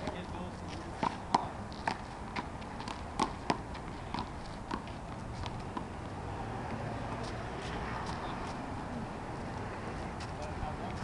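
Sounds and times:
handball slapping wall and court: 1.0 - 5.9.

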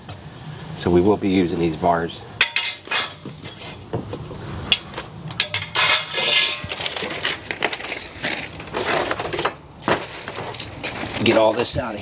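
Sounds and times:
steel bars clinking: 2.4 - 3.8, 4.7 - 11.6
paper and packaging rustling: 6.2 - 11.8.

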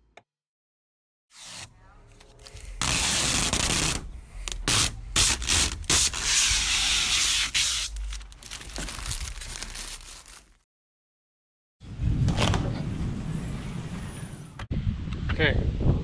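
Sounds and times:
plastic film peeling: 1.4 - 10.6.

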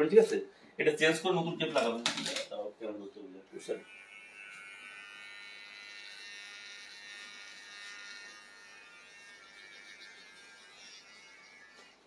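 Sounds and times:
electric hair trimmer buzzing: 3.6 - 12.0.

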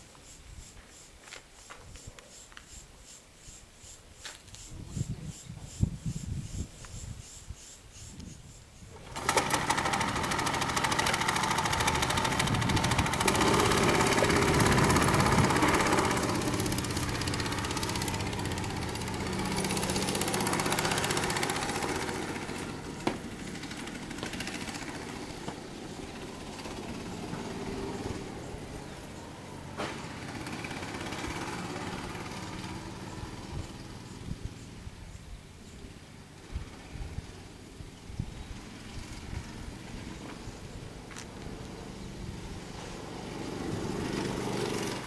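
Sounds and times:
go-kart engine at high revs: 9.0 - 34.3, 36.2 - 40.5, 41.9 - 45.0.

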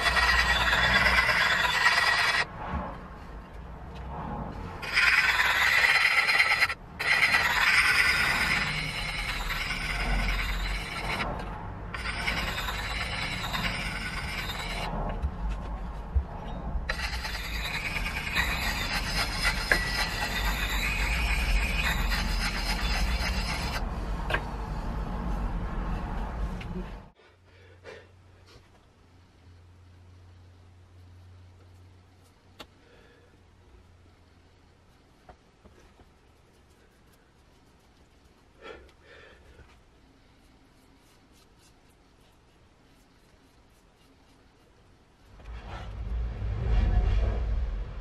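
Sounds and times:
sharpening stone scraping steel: 0.0 - 2.5, 4.8 - 14.9, 16.9 - 23.8.

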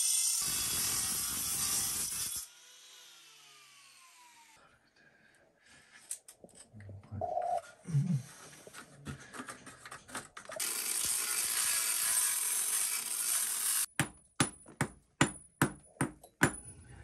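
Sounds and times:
angle grinder cutting floor: 10.6 - 13.9.

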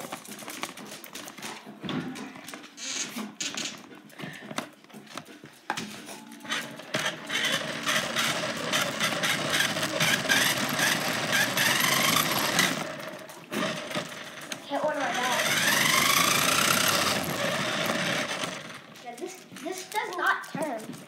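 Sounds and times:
toy car motor whirring: 6.4 - 21.0.

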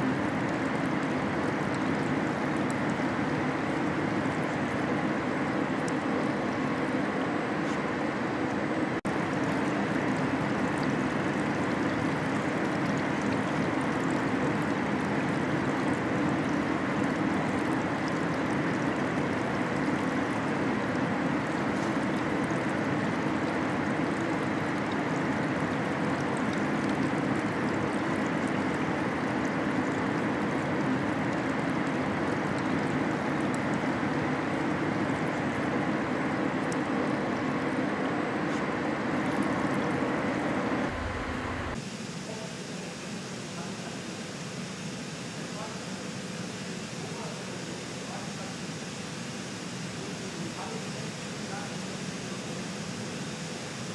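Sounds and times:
low machine hum: 0.0 - 53.9
flowing water rushing: 39.2 - 41.8.

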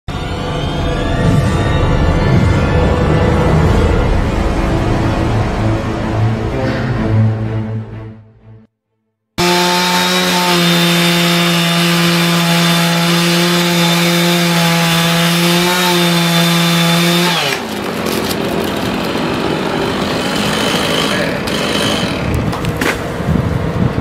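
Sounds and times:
chainsaw running: 9.4 - 22.6.

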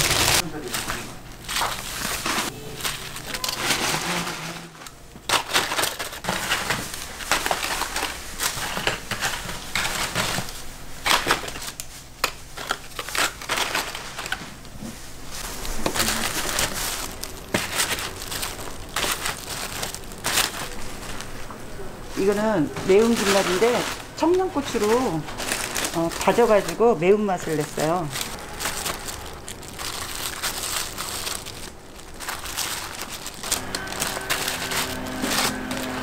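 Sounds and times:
fried snacks crunching: 27.4 - 36.0.

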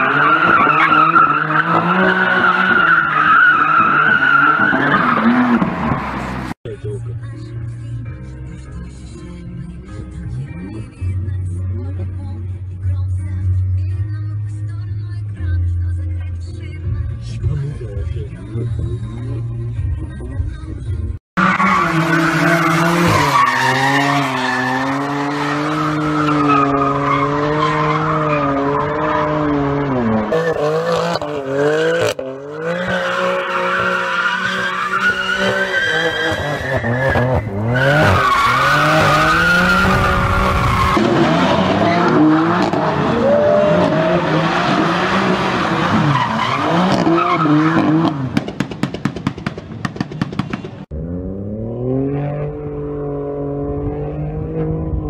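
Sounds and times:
car engines revving: 0.0 - 6.6, 21.4 - 55.0
tyres skidding and squealing: 0.0 - 6.6, 21.4 - 52.4.

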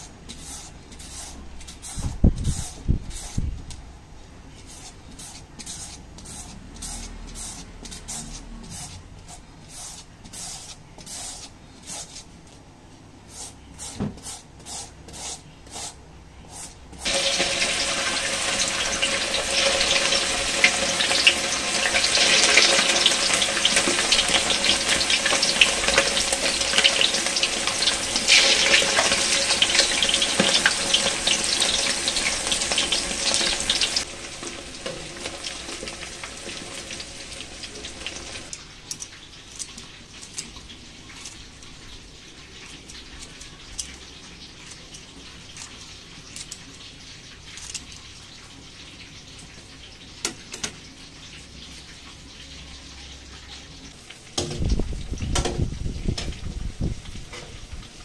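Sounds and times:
gourd rasped on grater: 0.0 - 3.5, 4.6 - 12.3, 13.3 - 17.2
chicken sizzling in hot oil: 17.0 - 38.5.

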